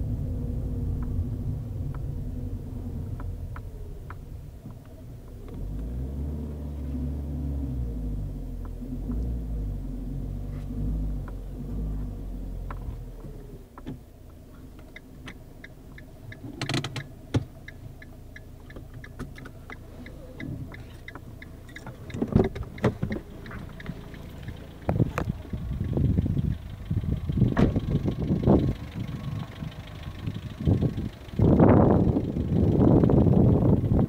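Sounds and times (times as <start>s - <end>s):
car engine running: 0.0s - 34.0s
light ticking: 3.1s - 5.9s, 13.7s - 34.0s
car door opening: 20.3s - 24.1s, 27.5s - 27.9s.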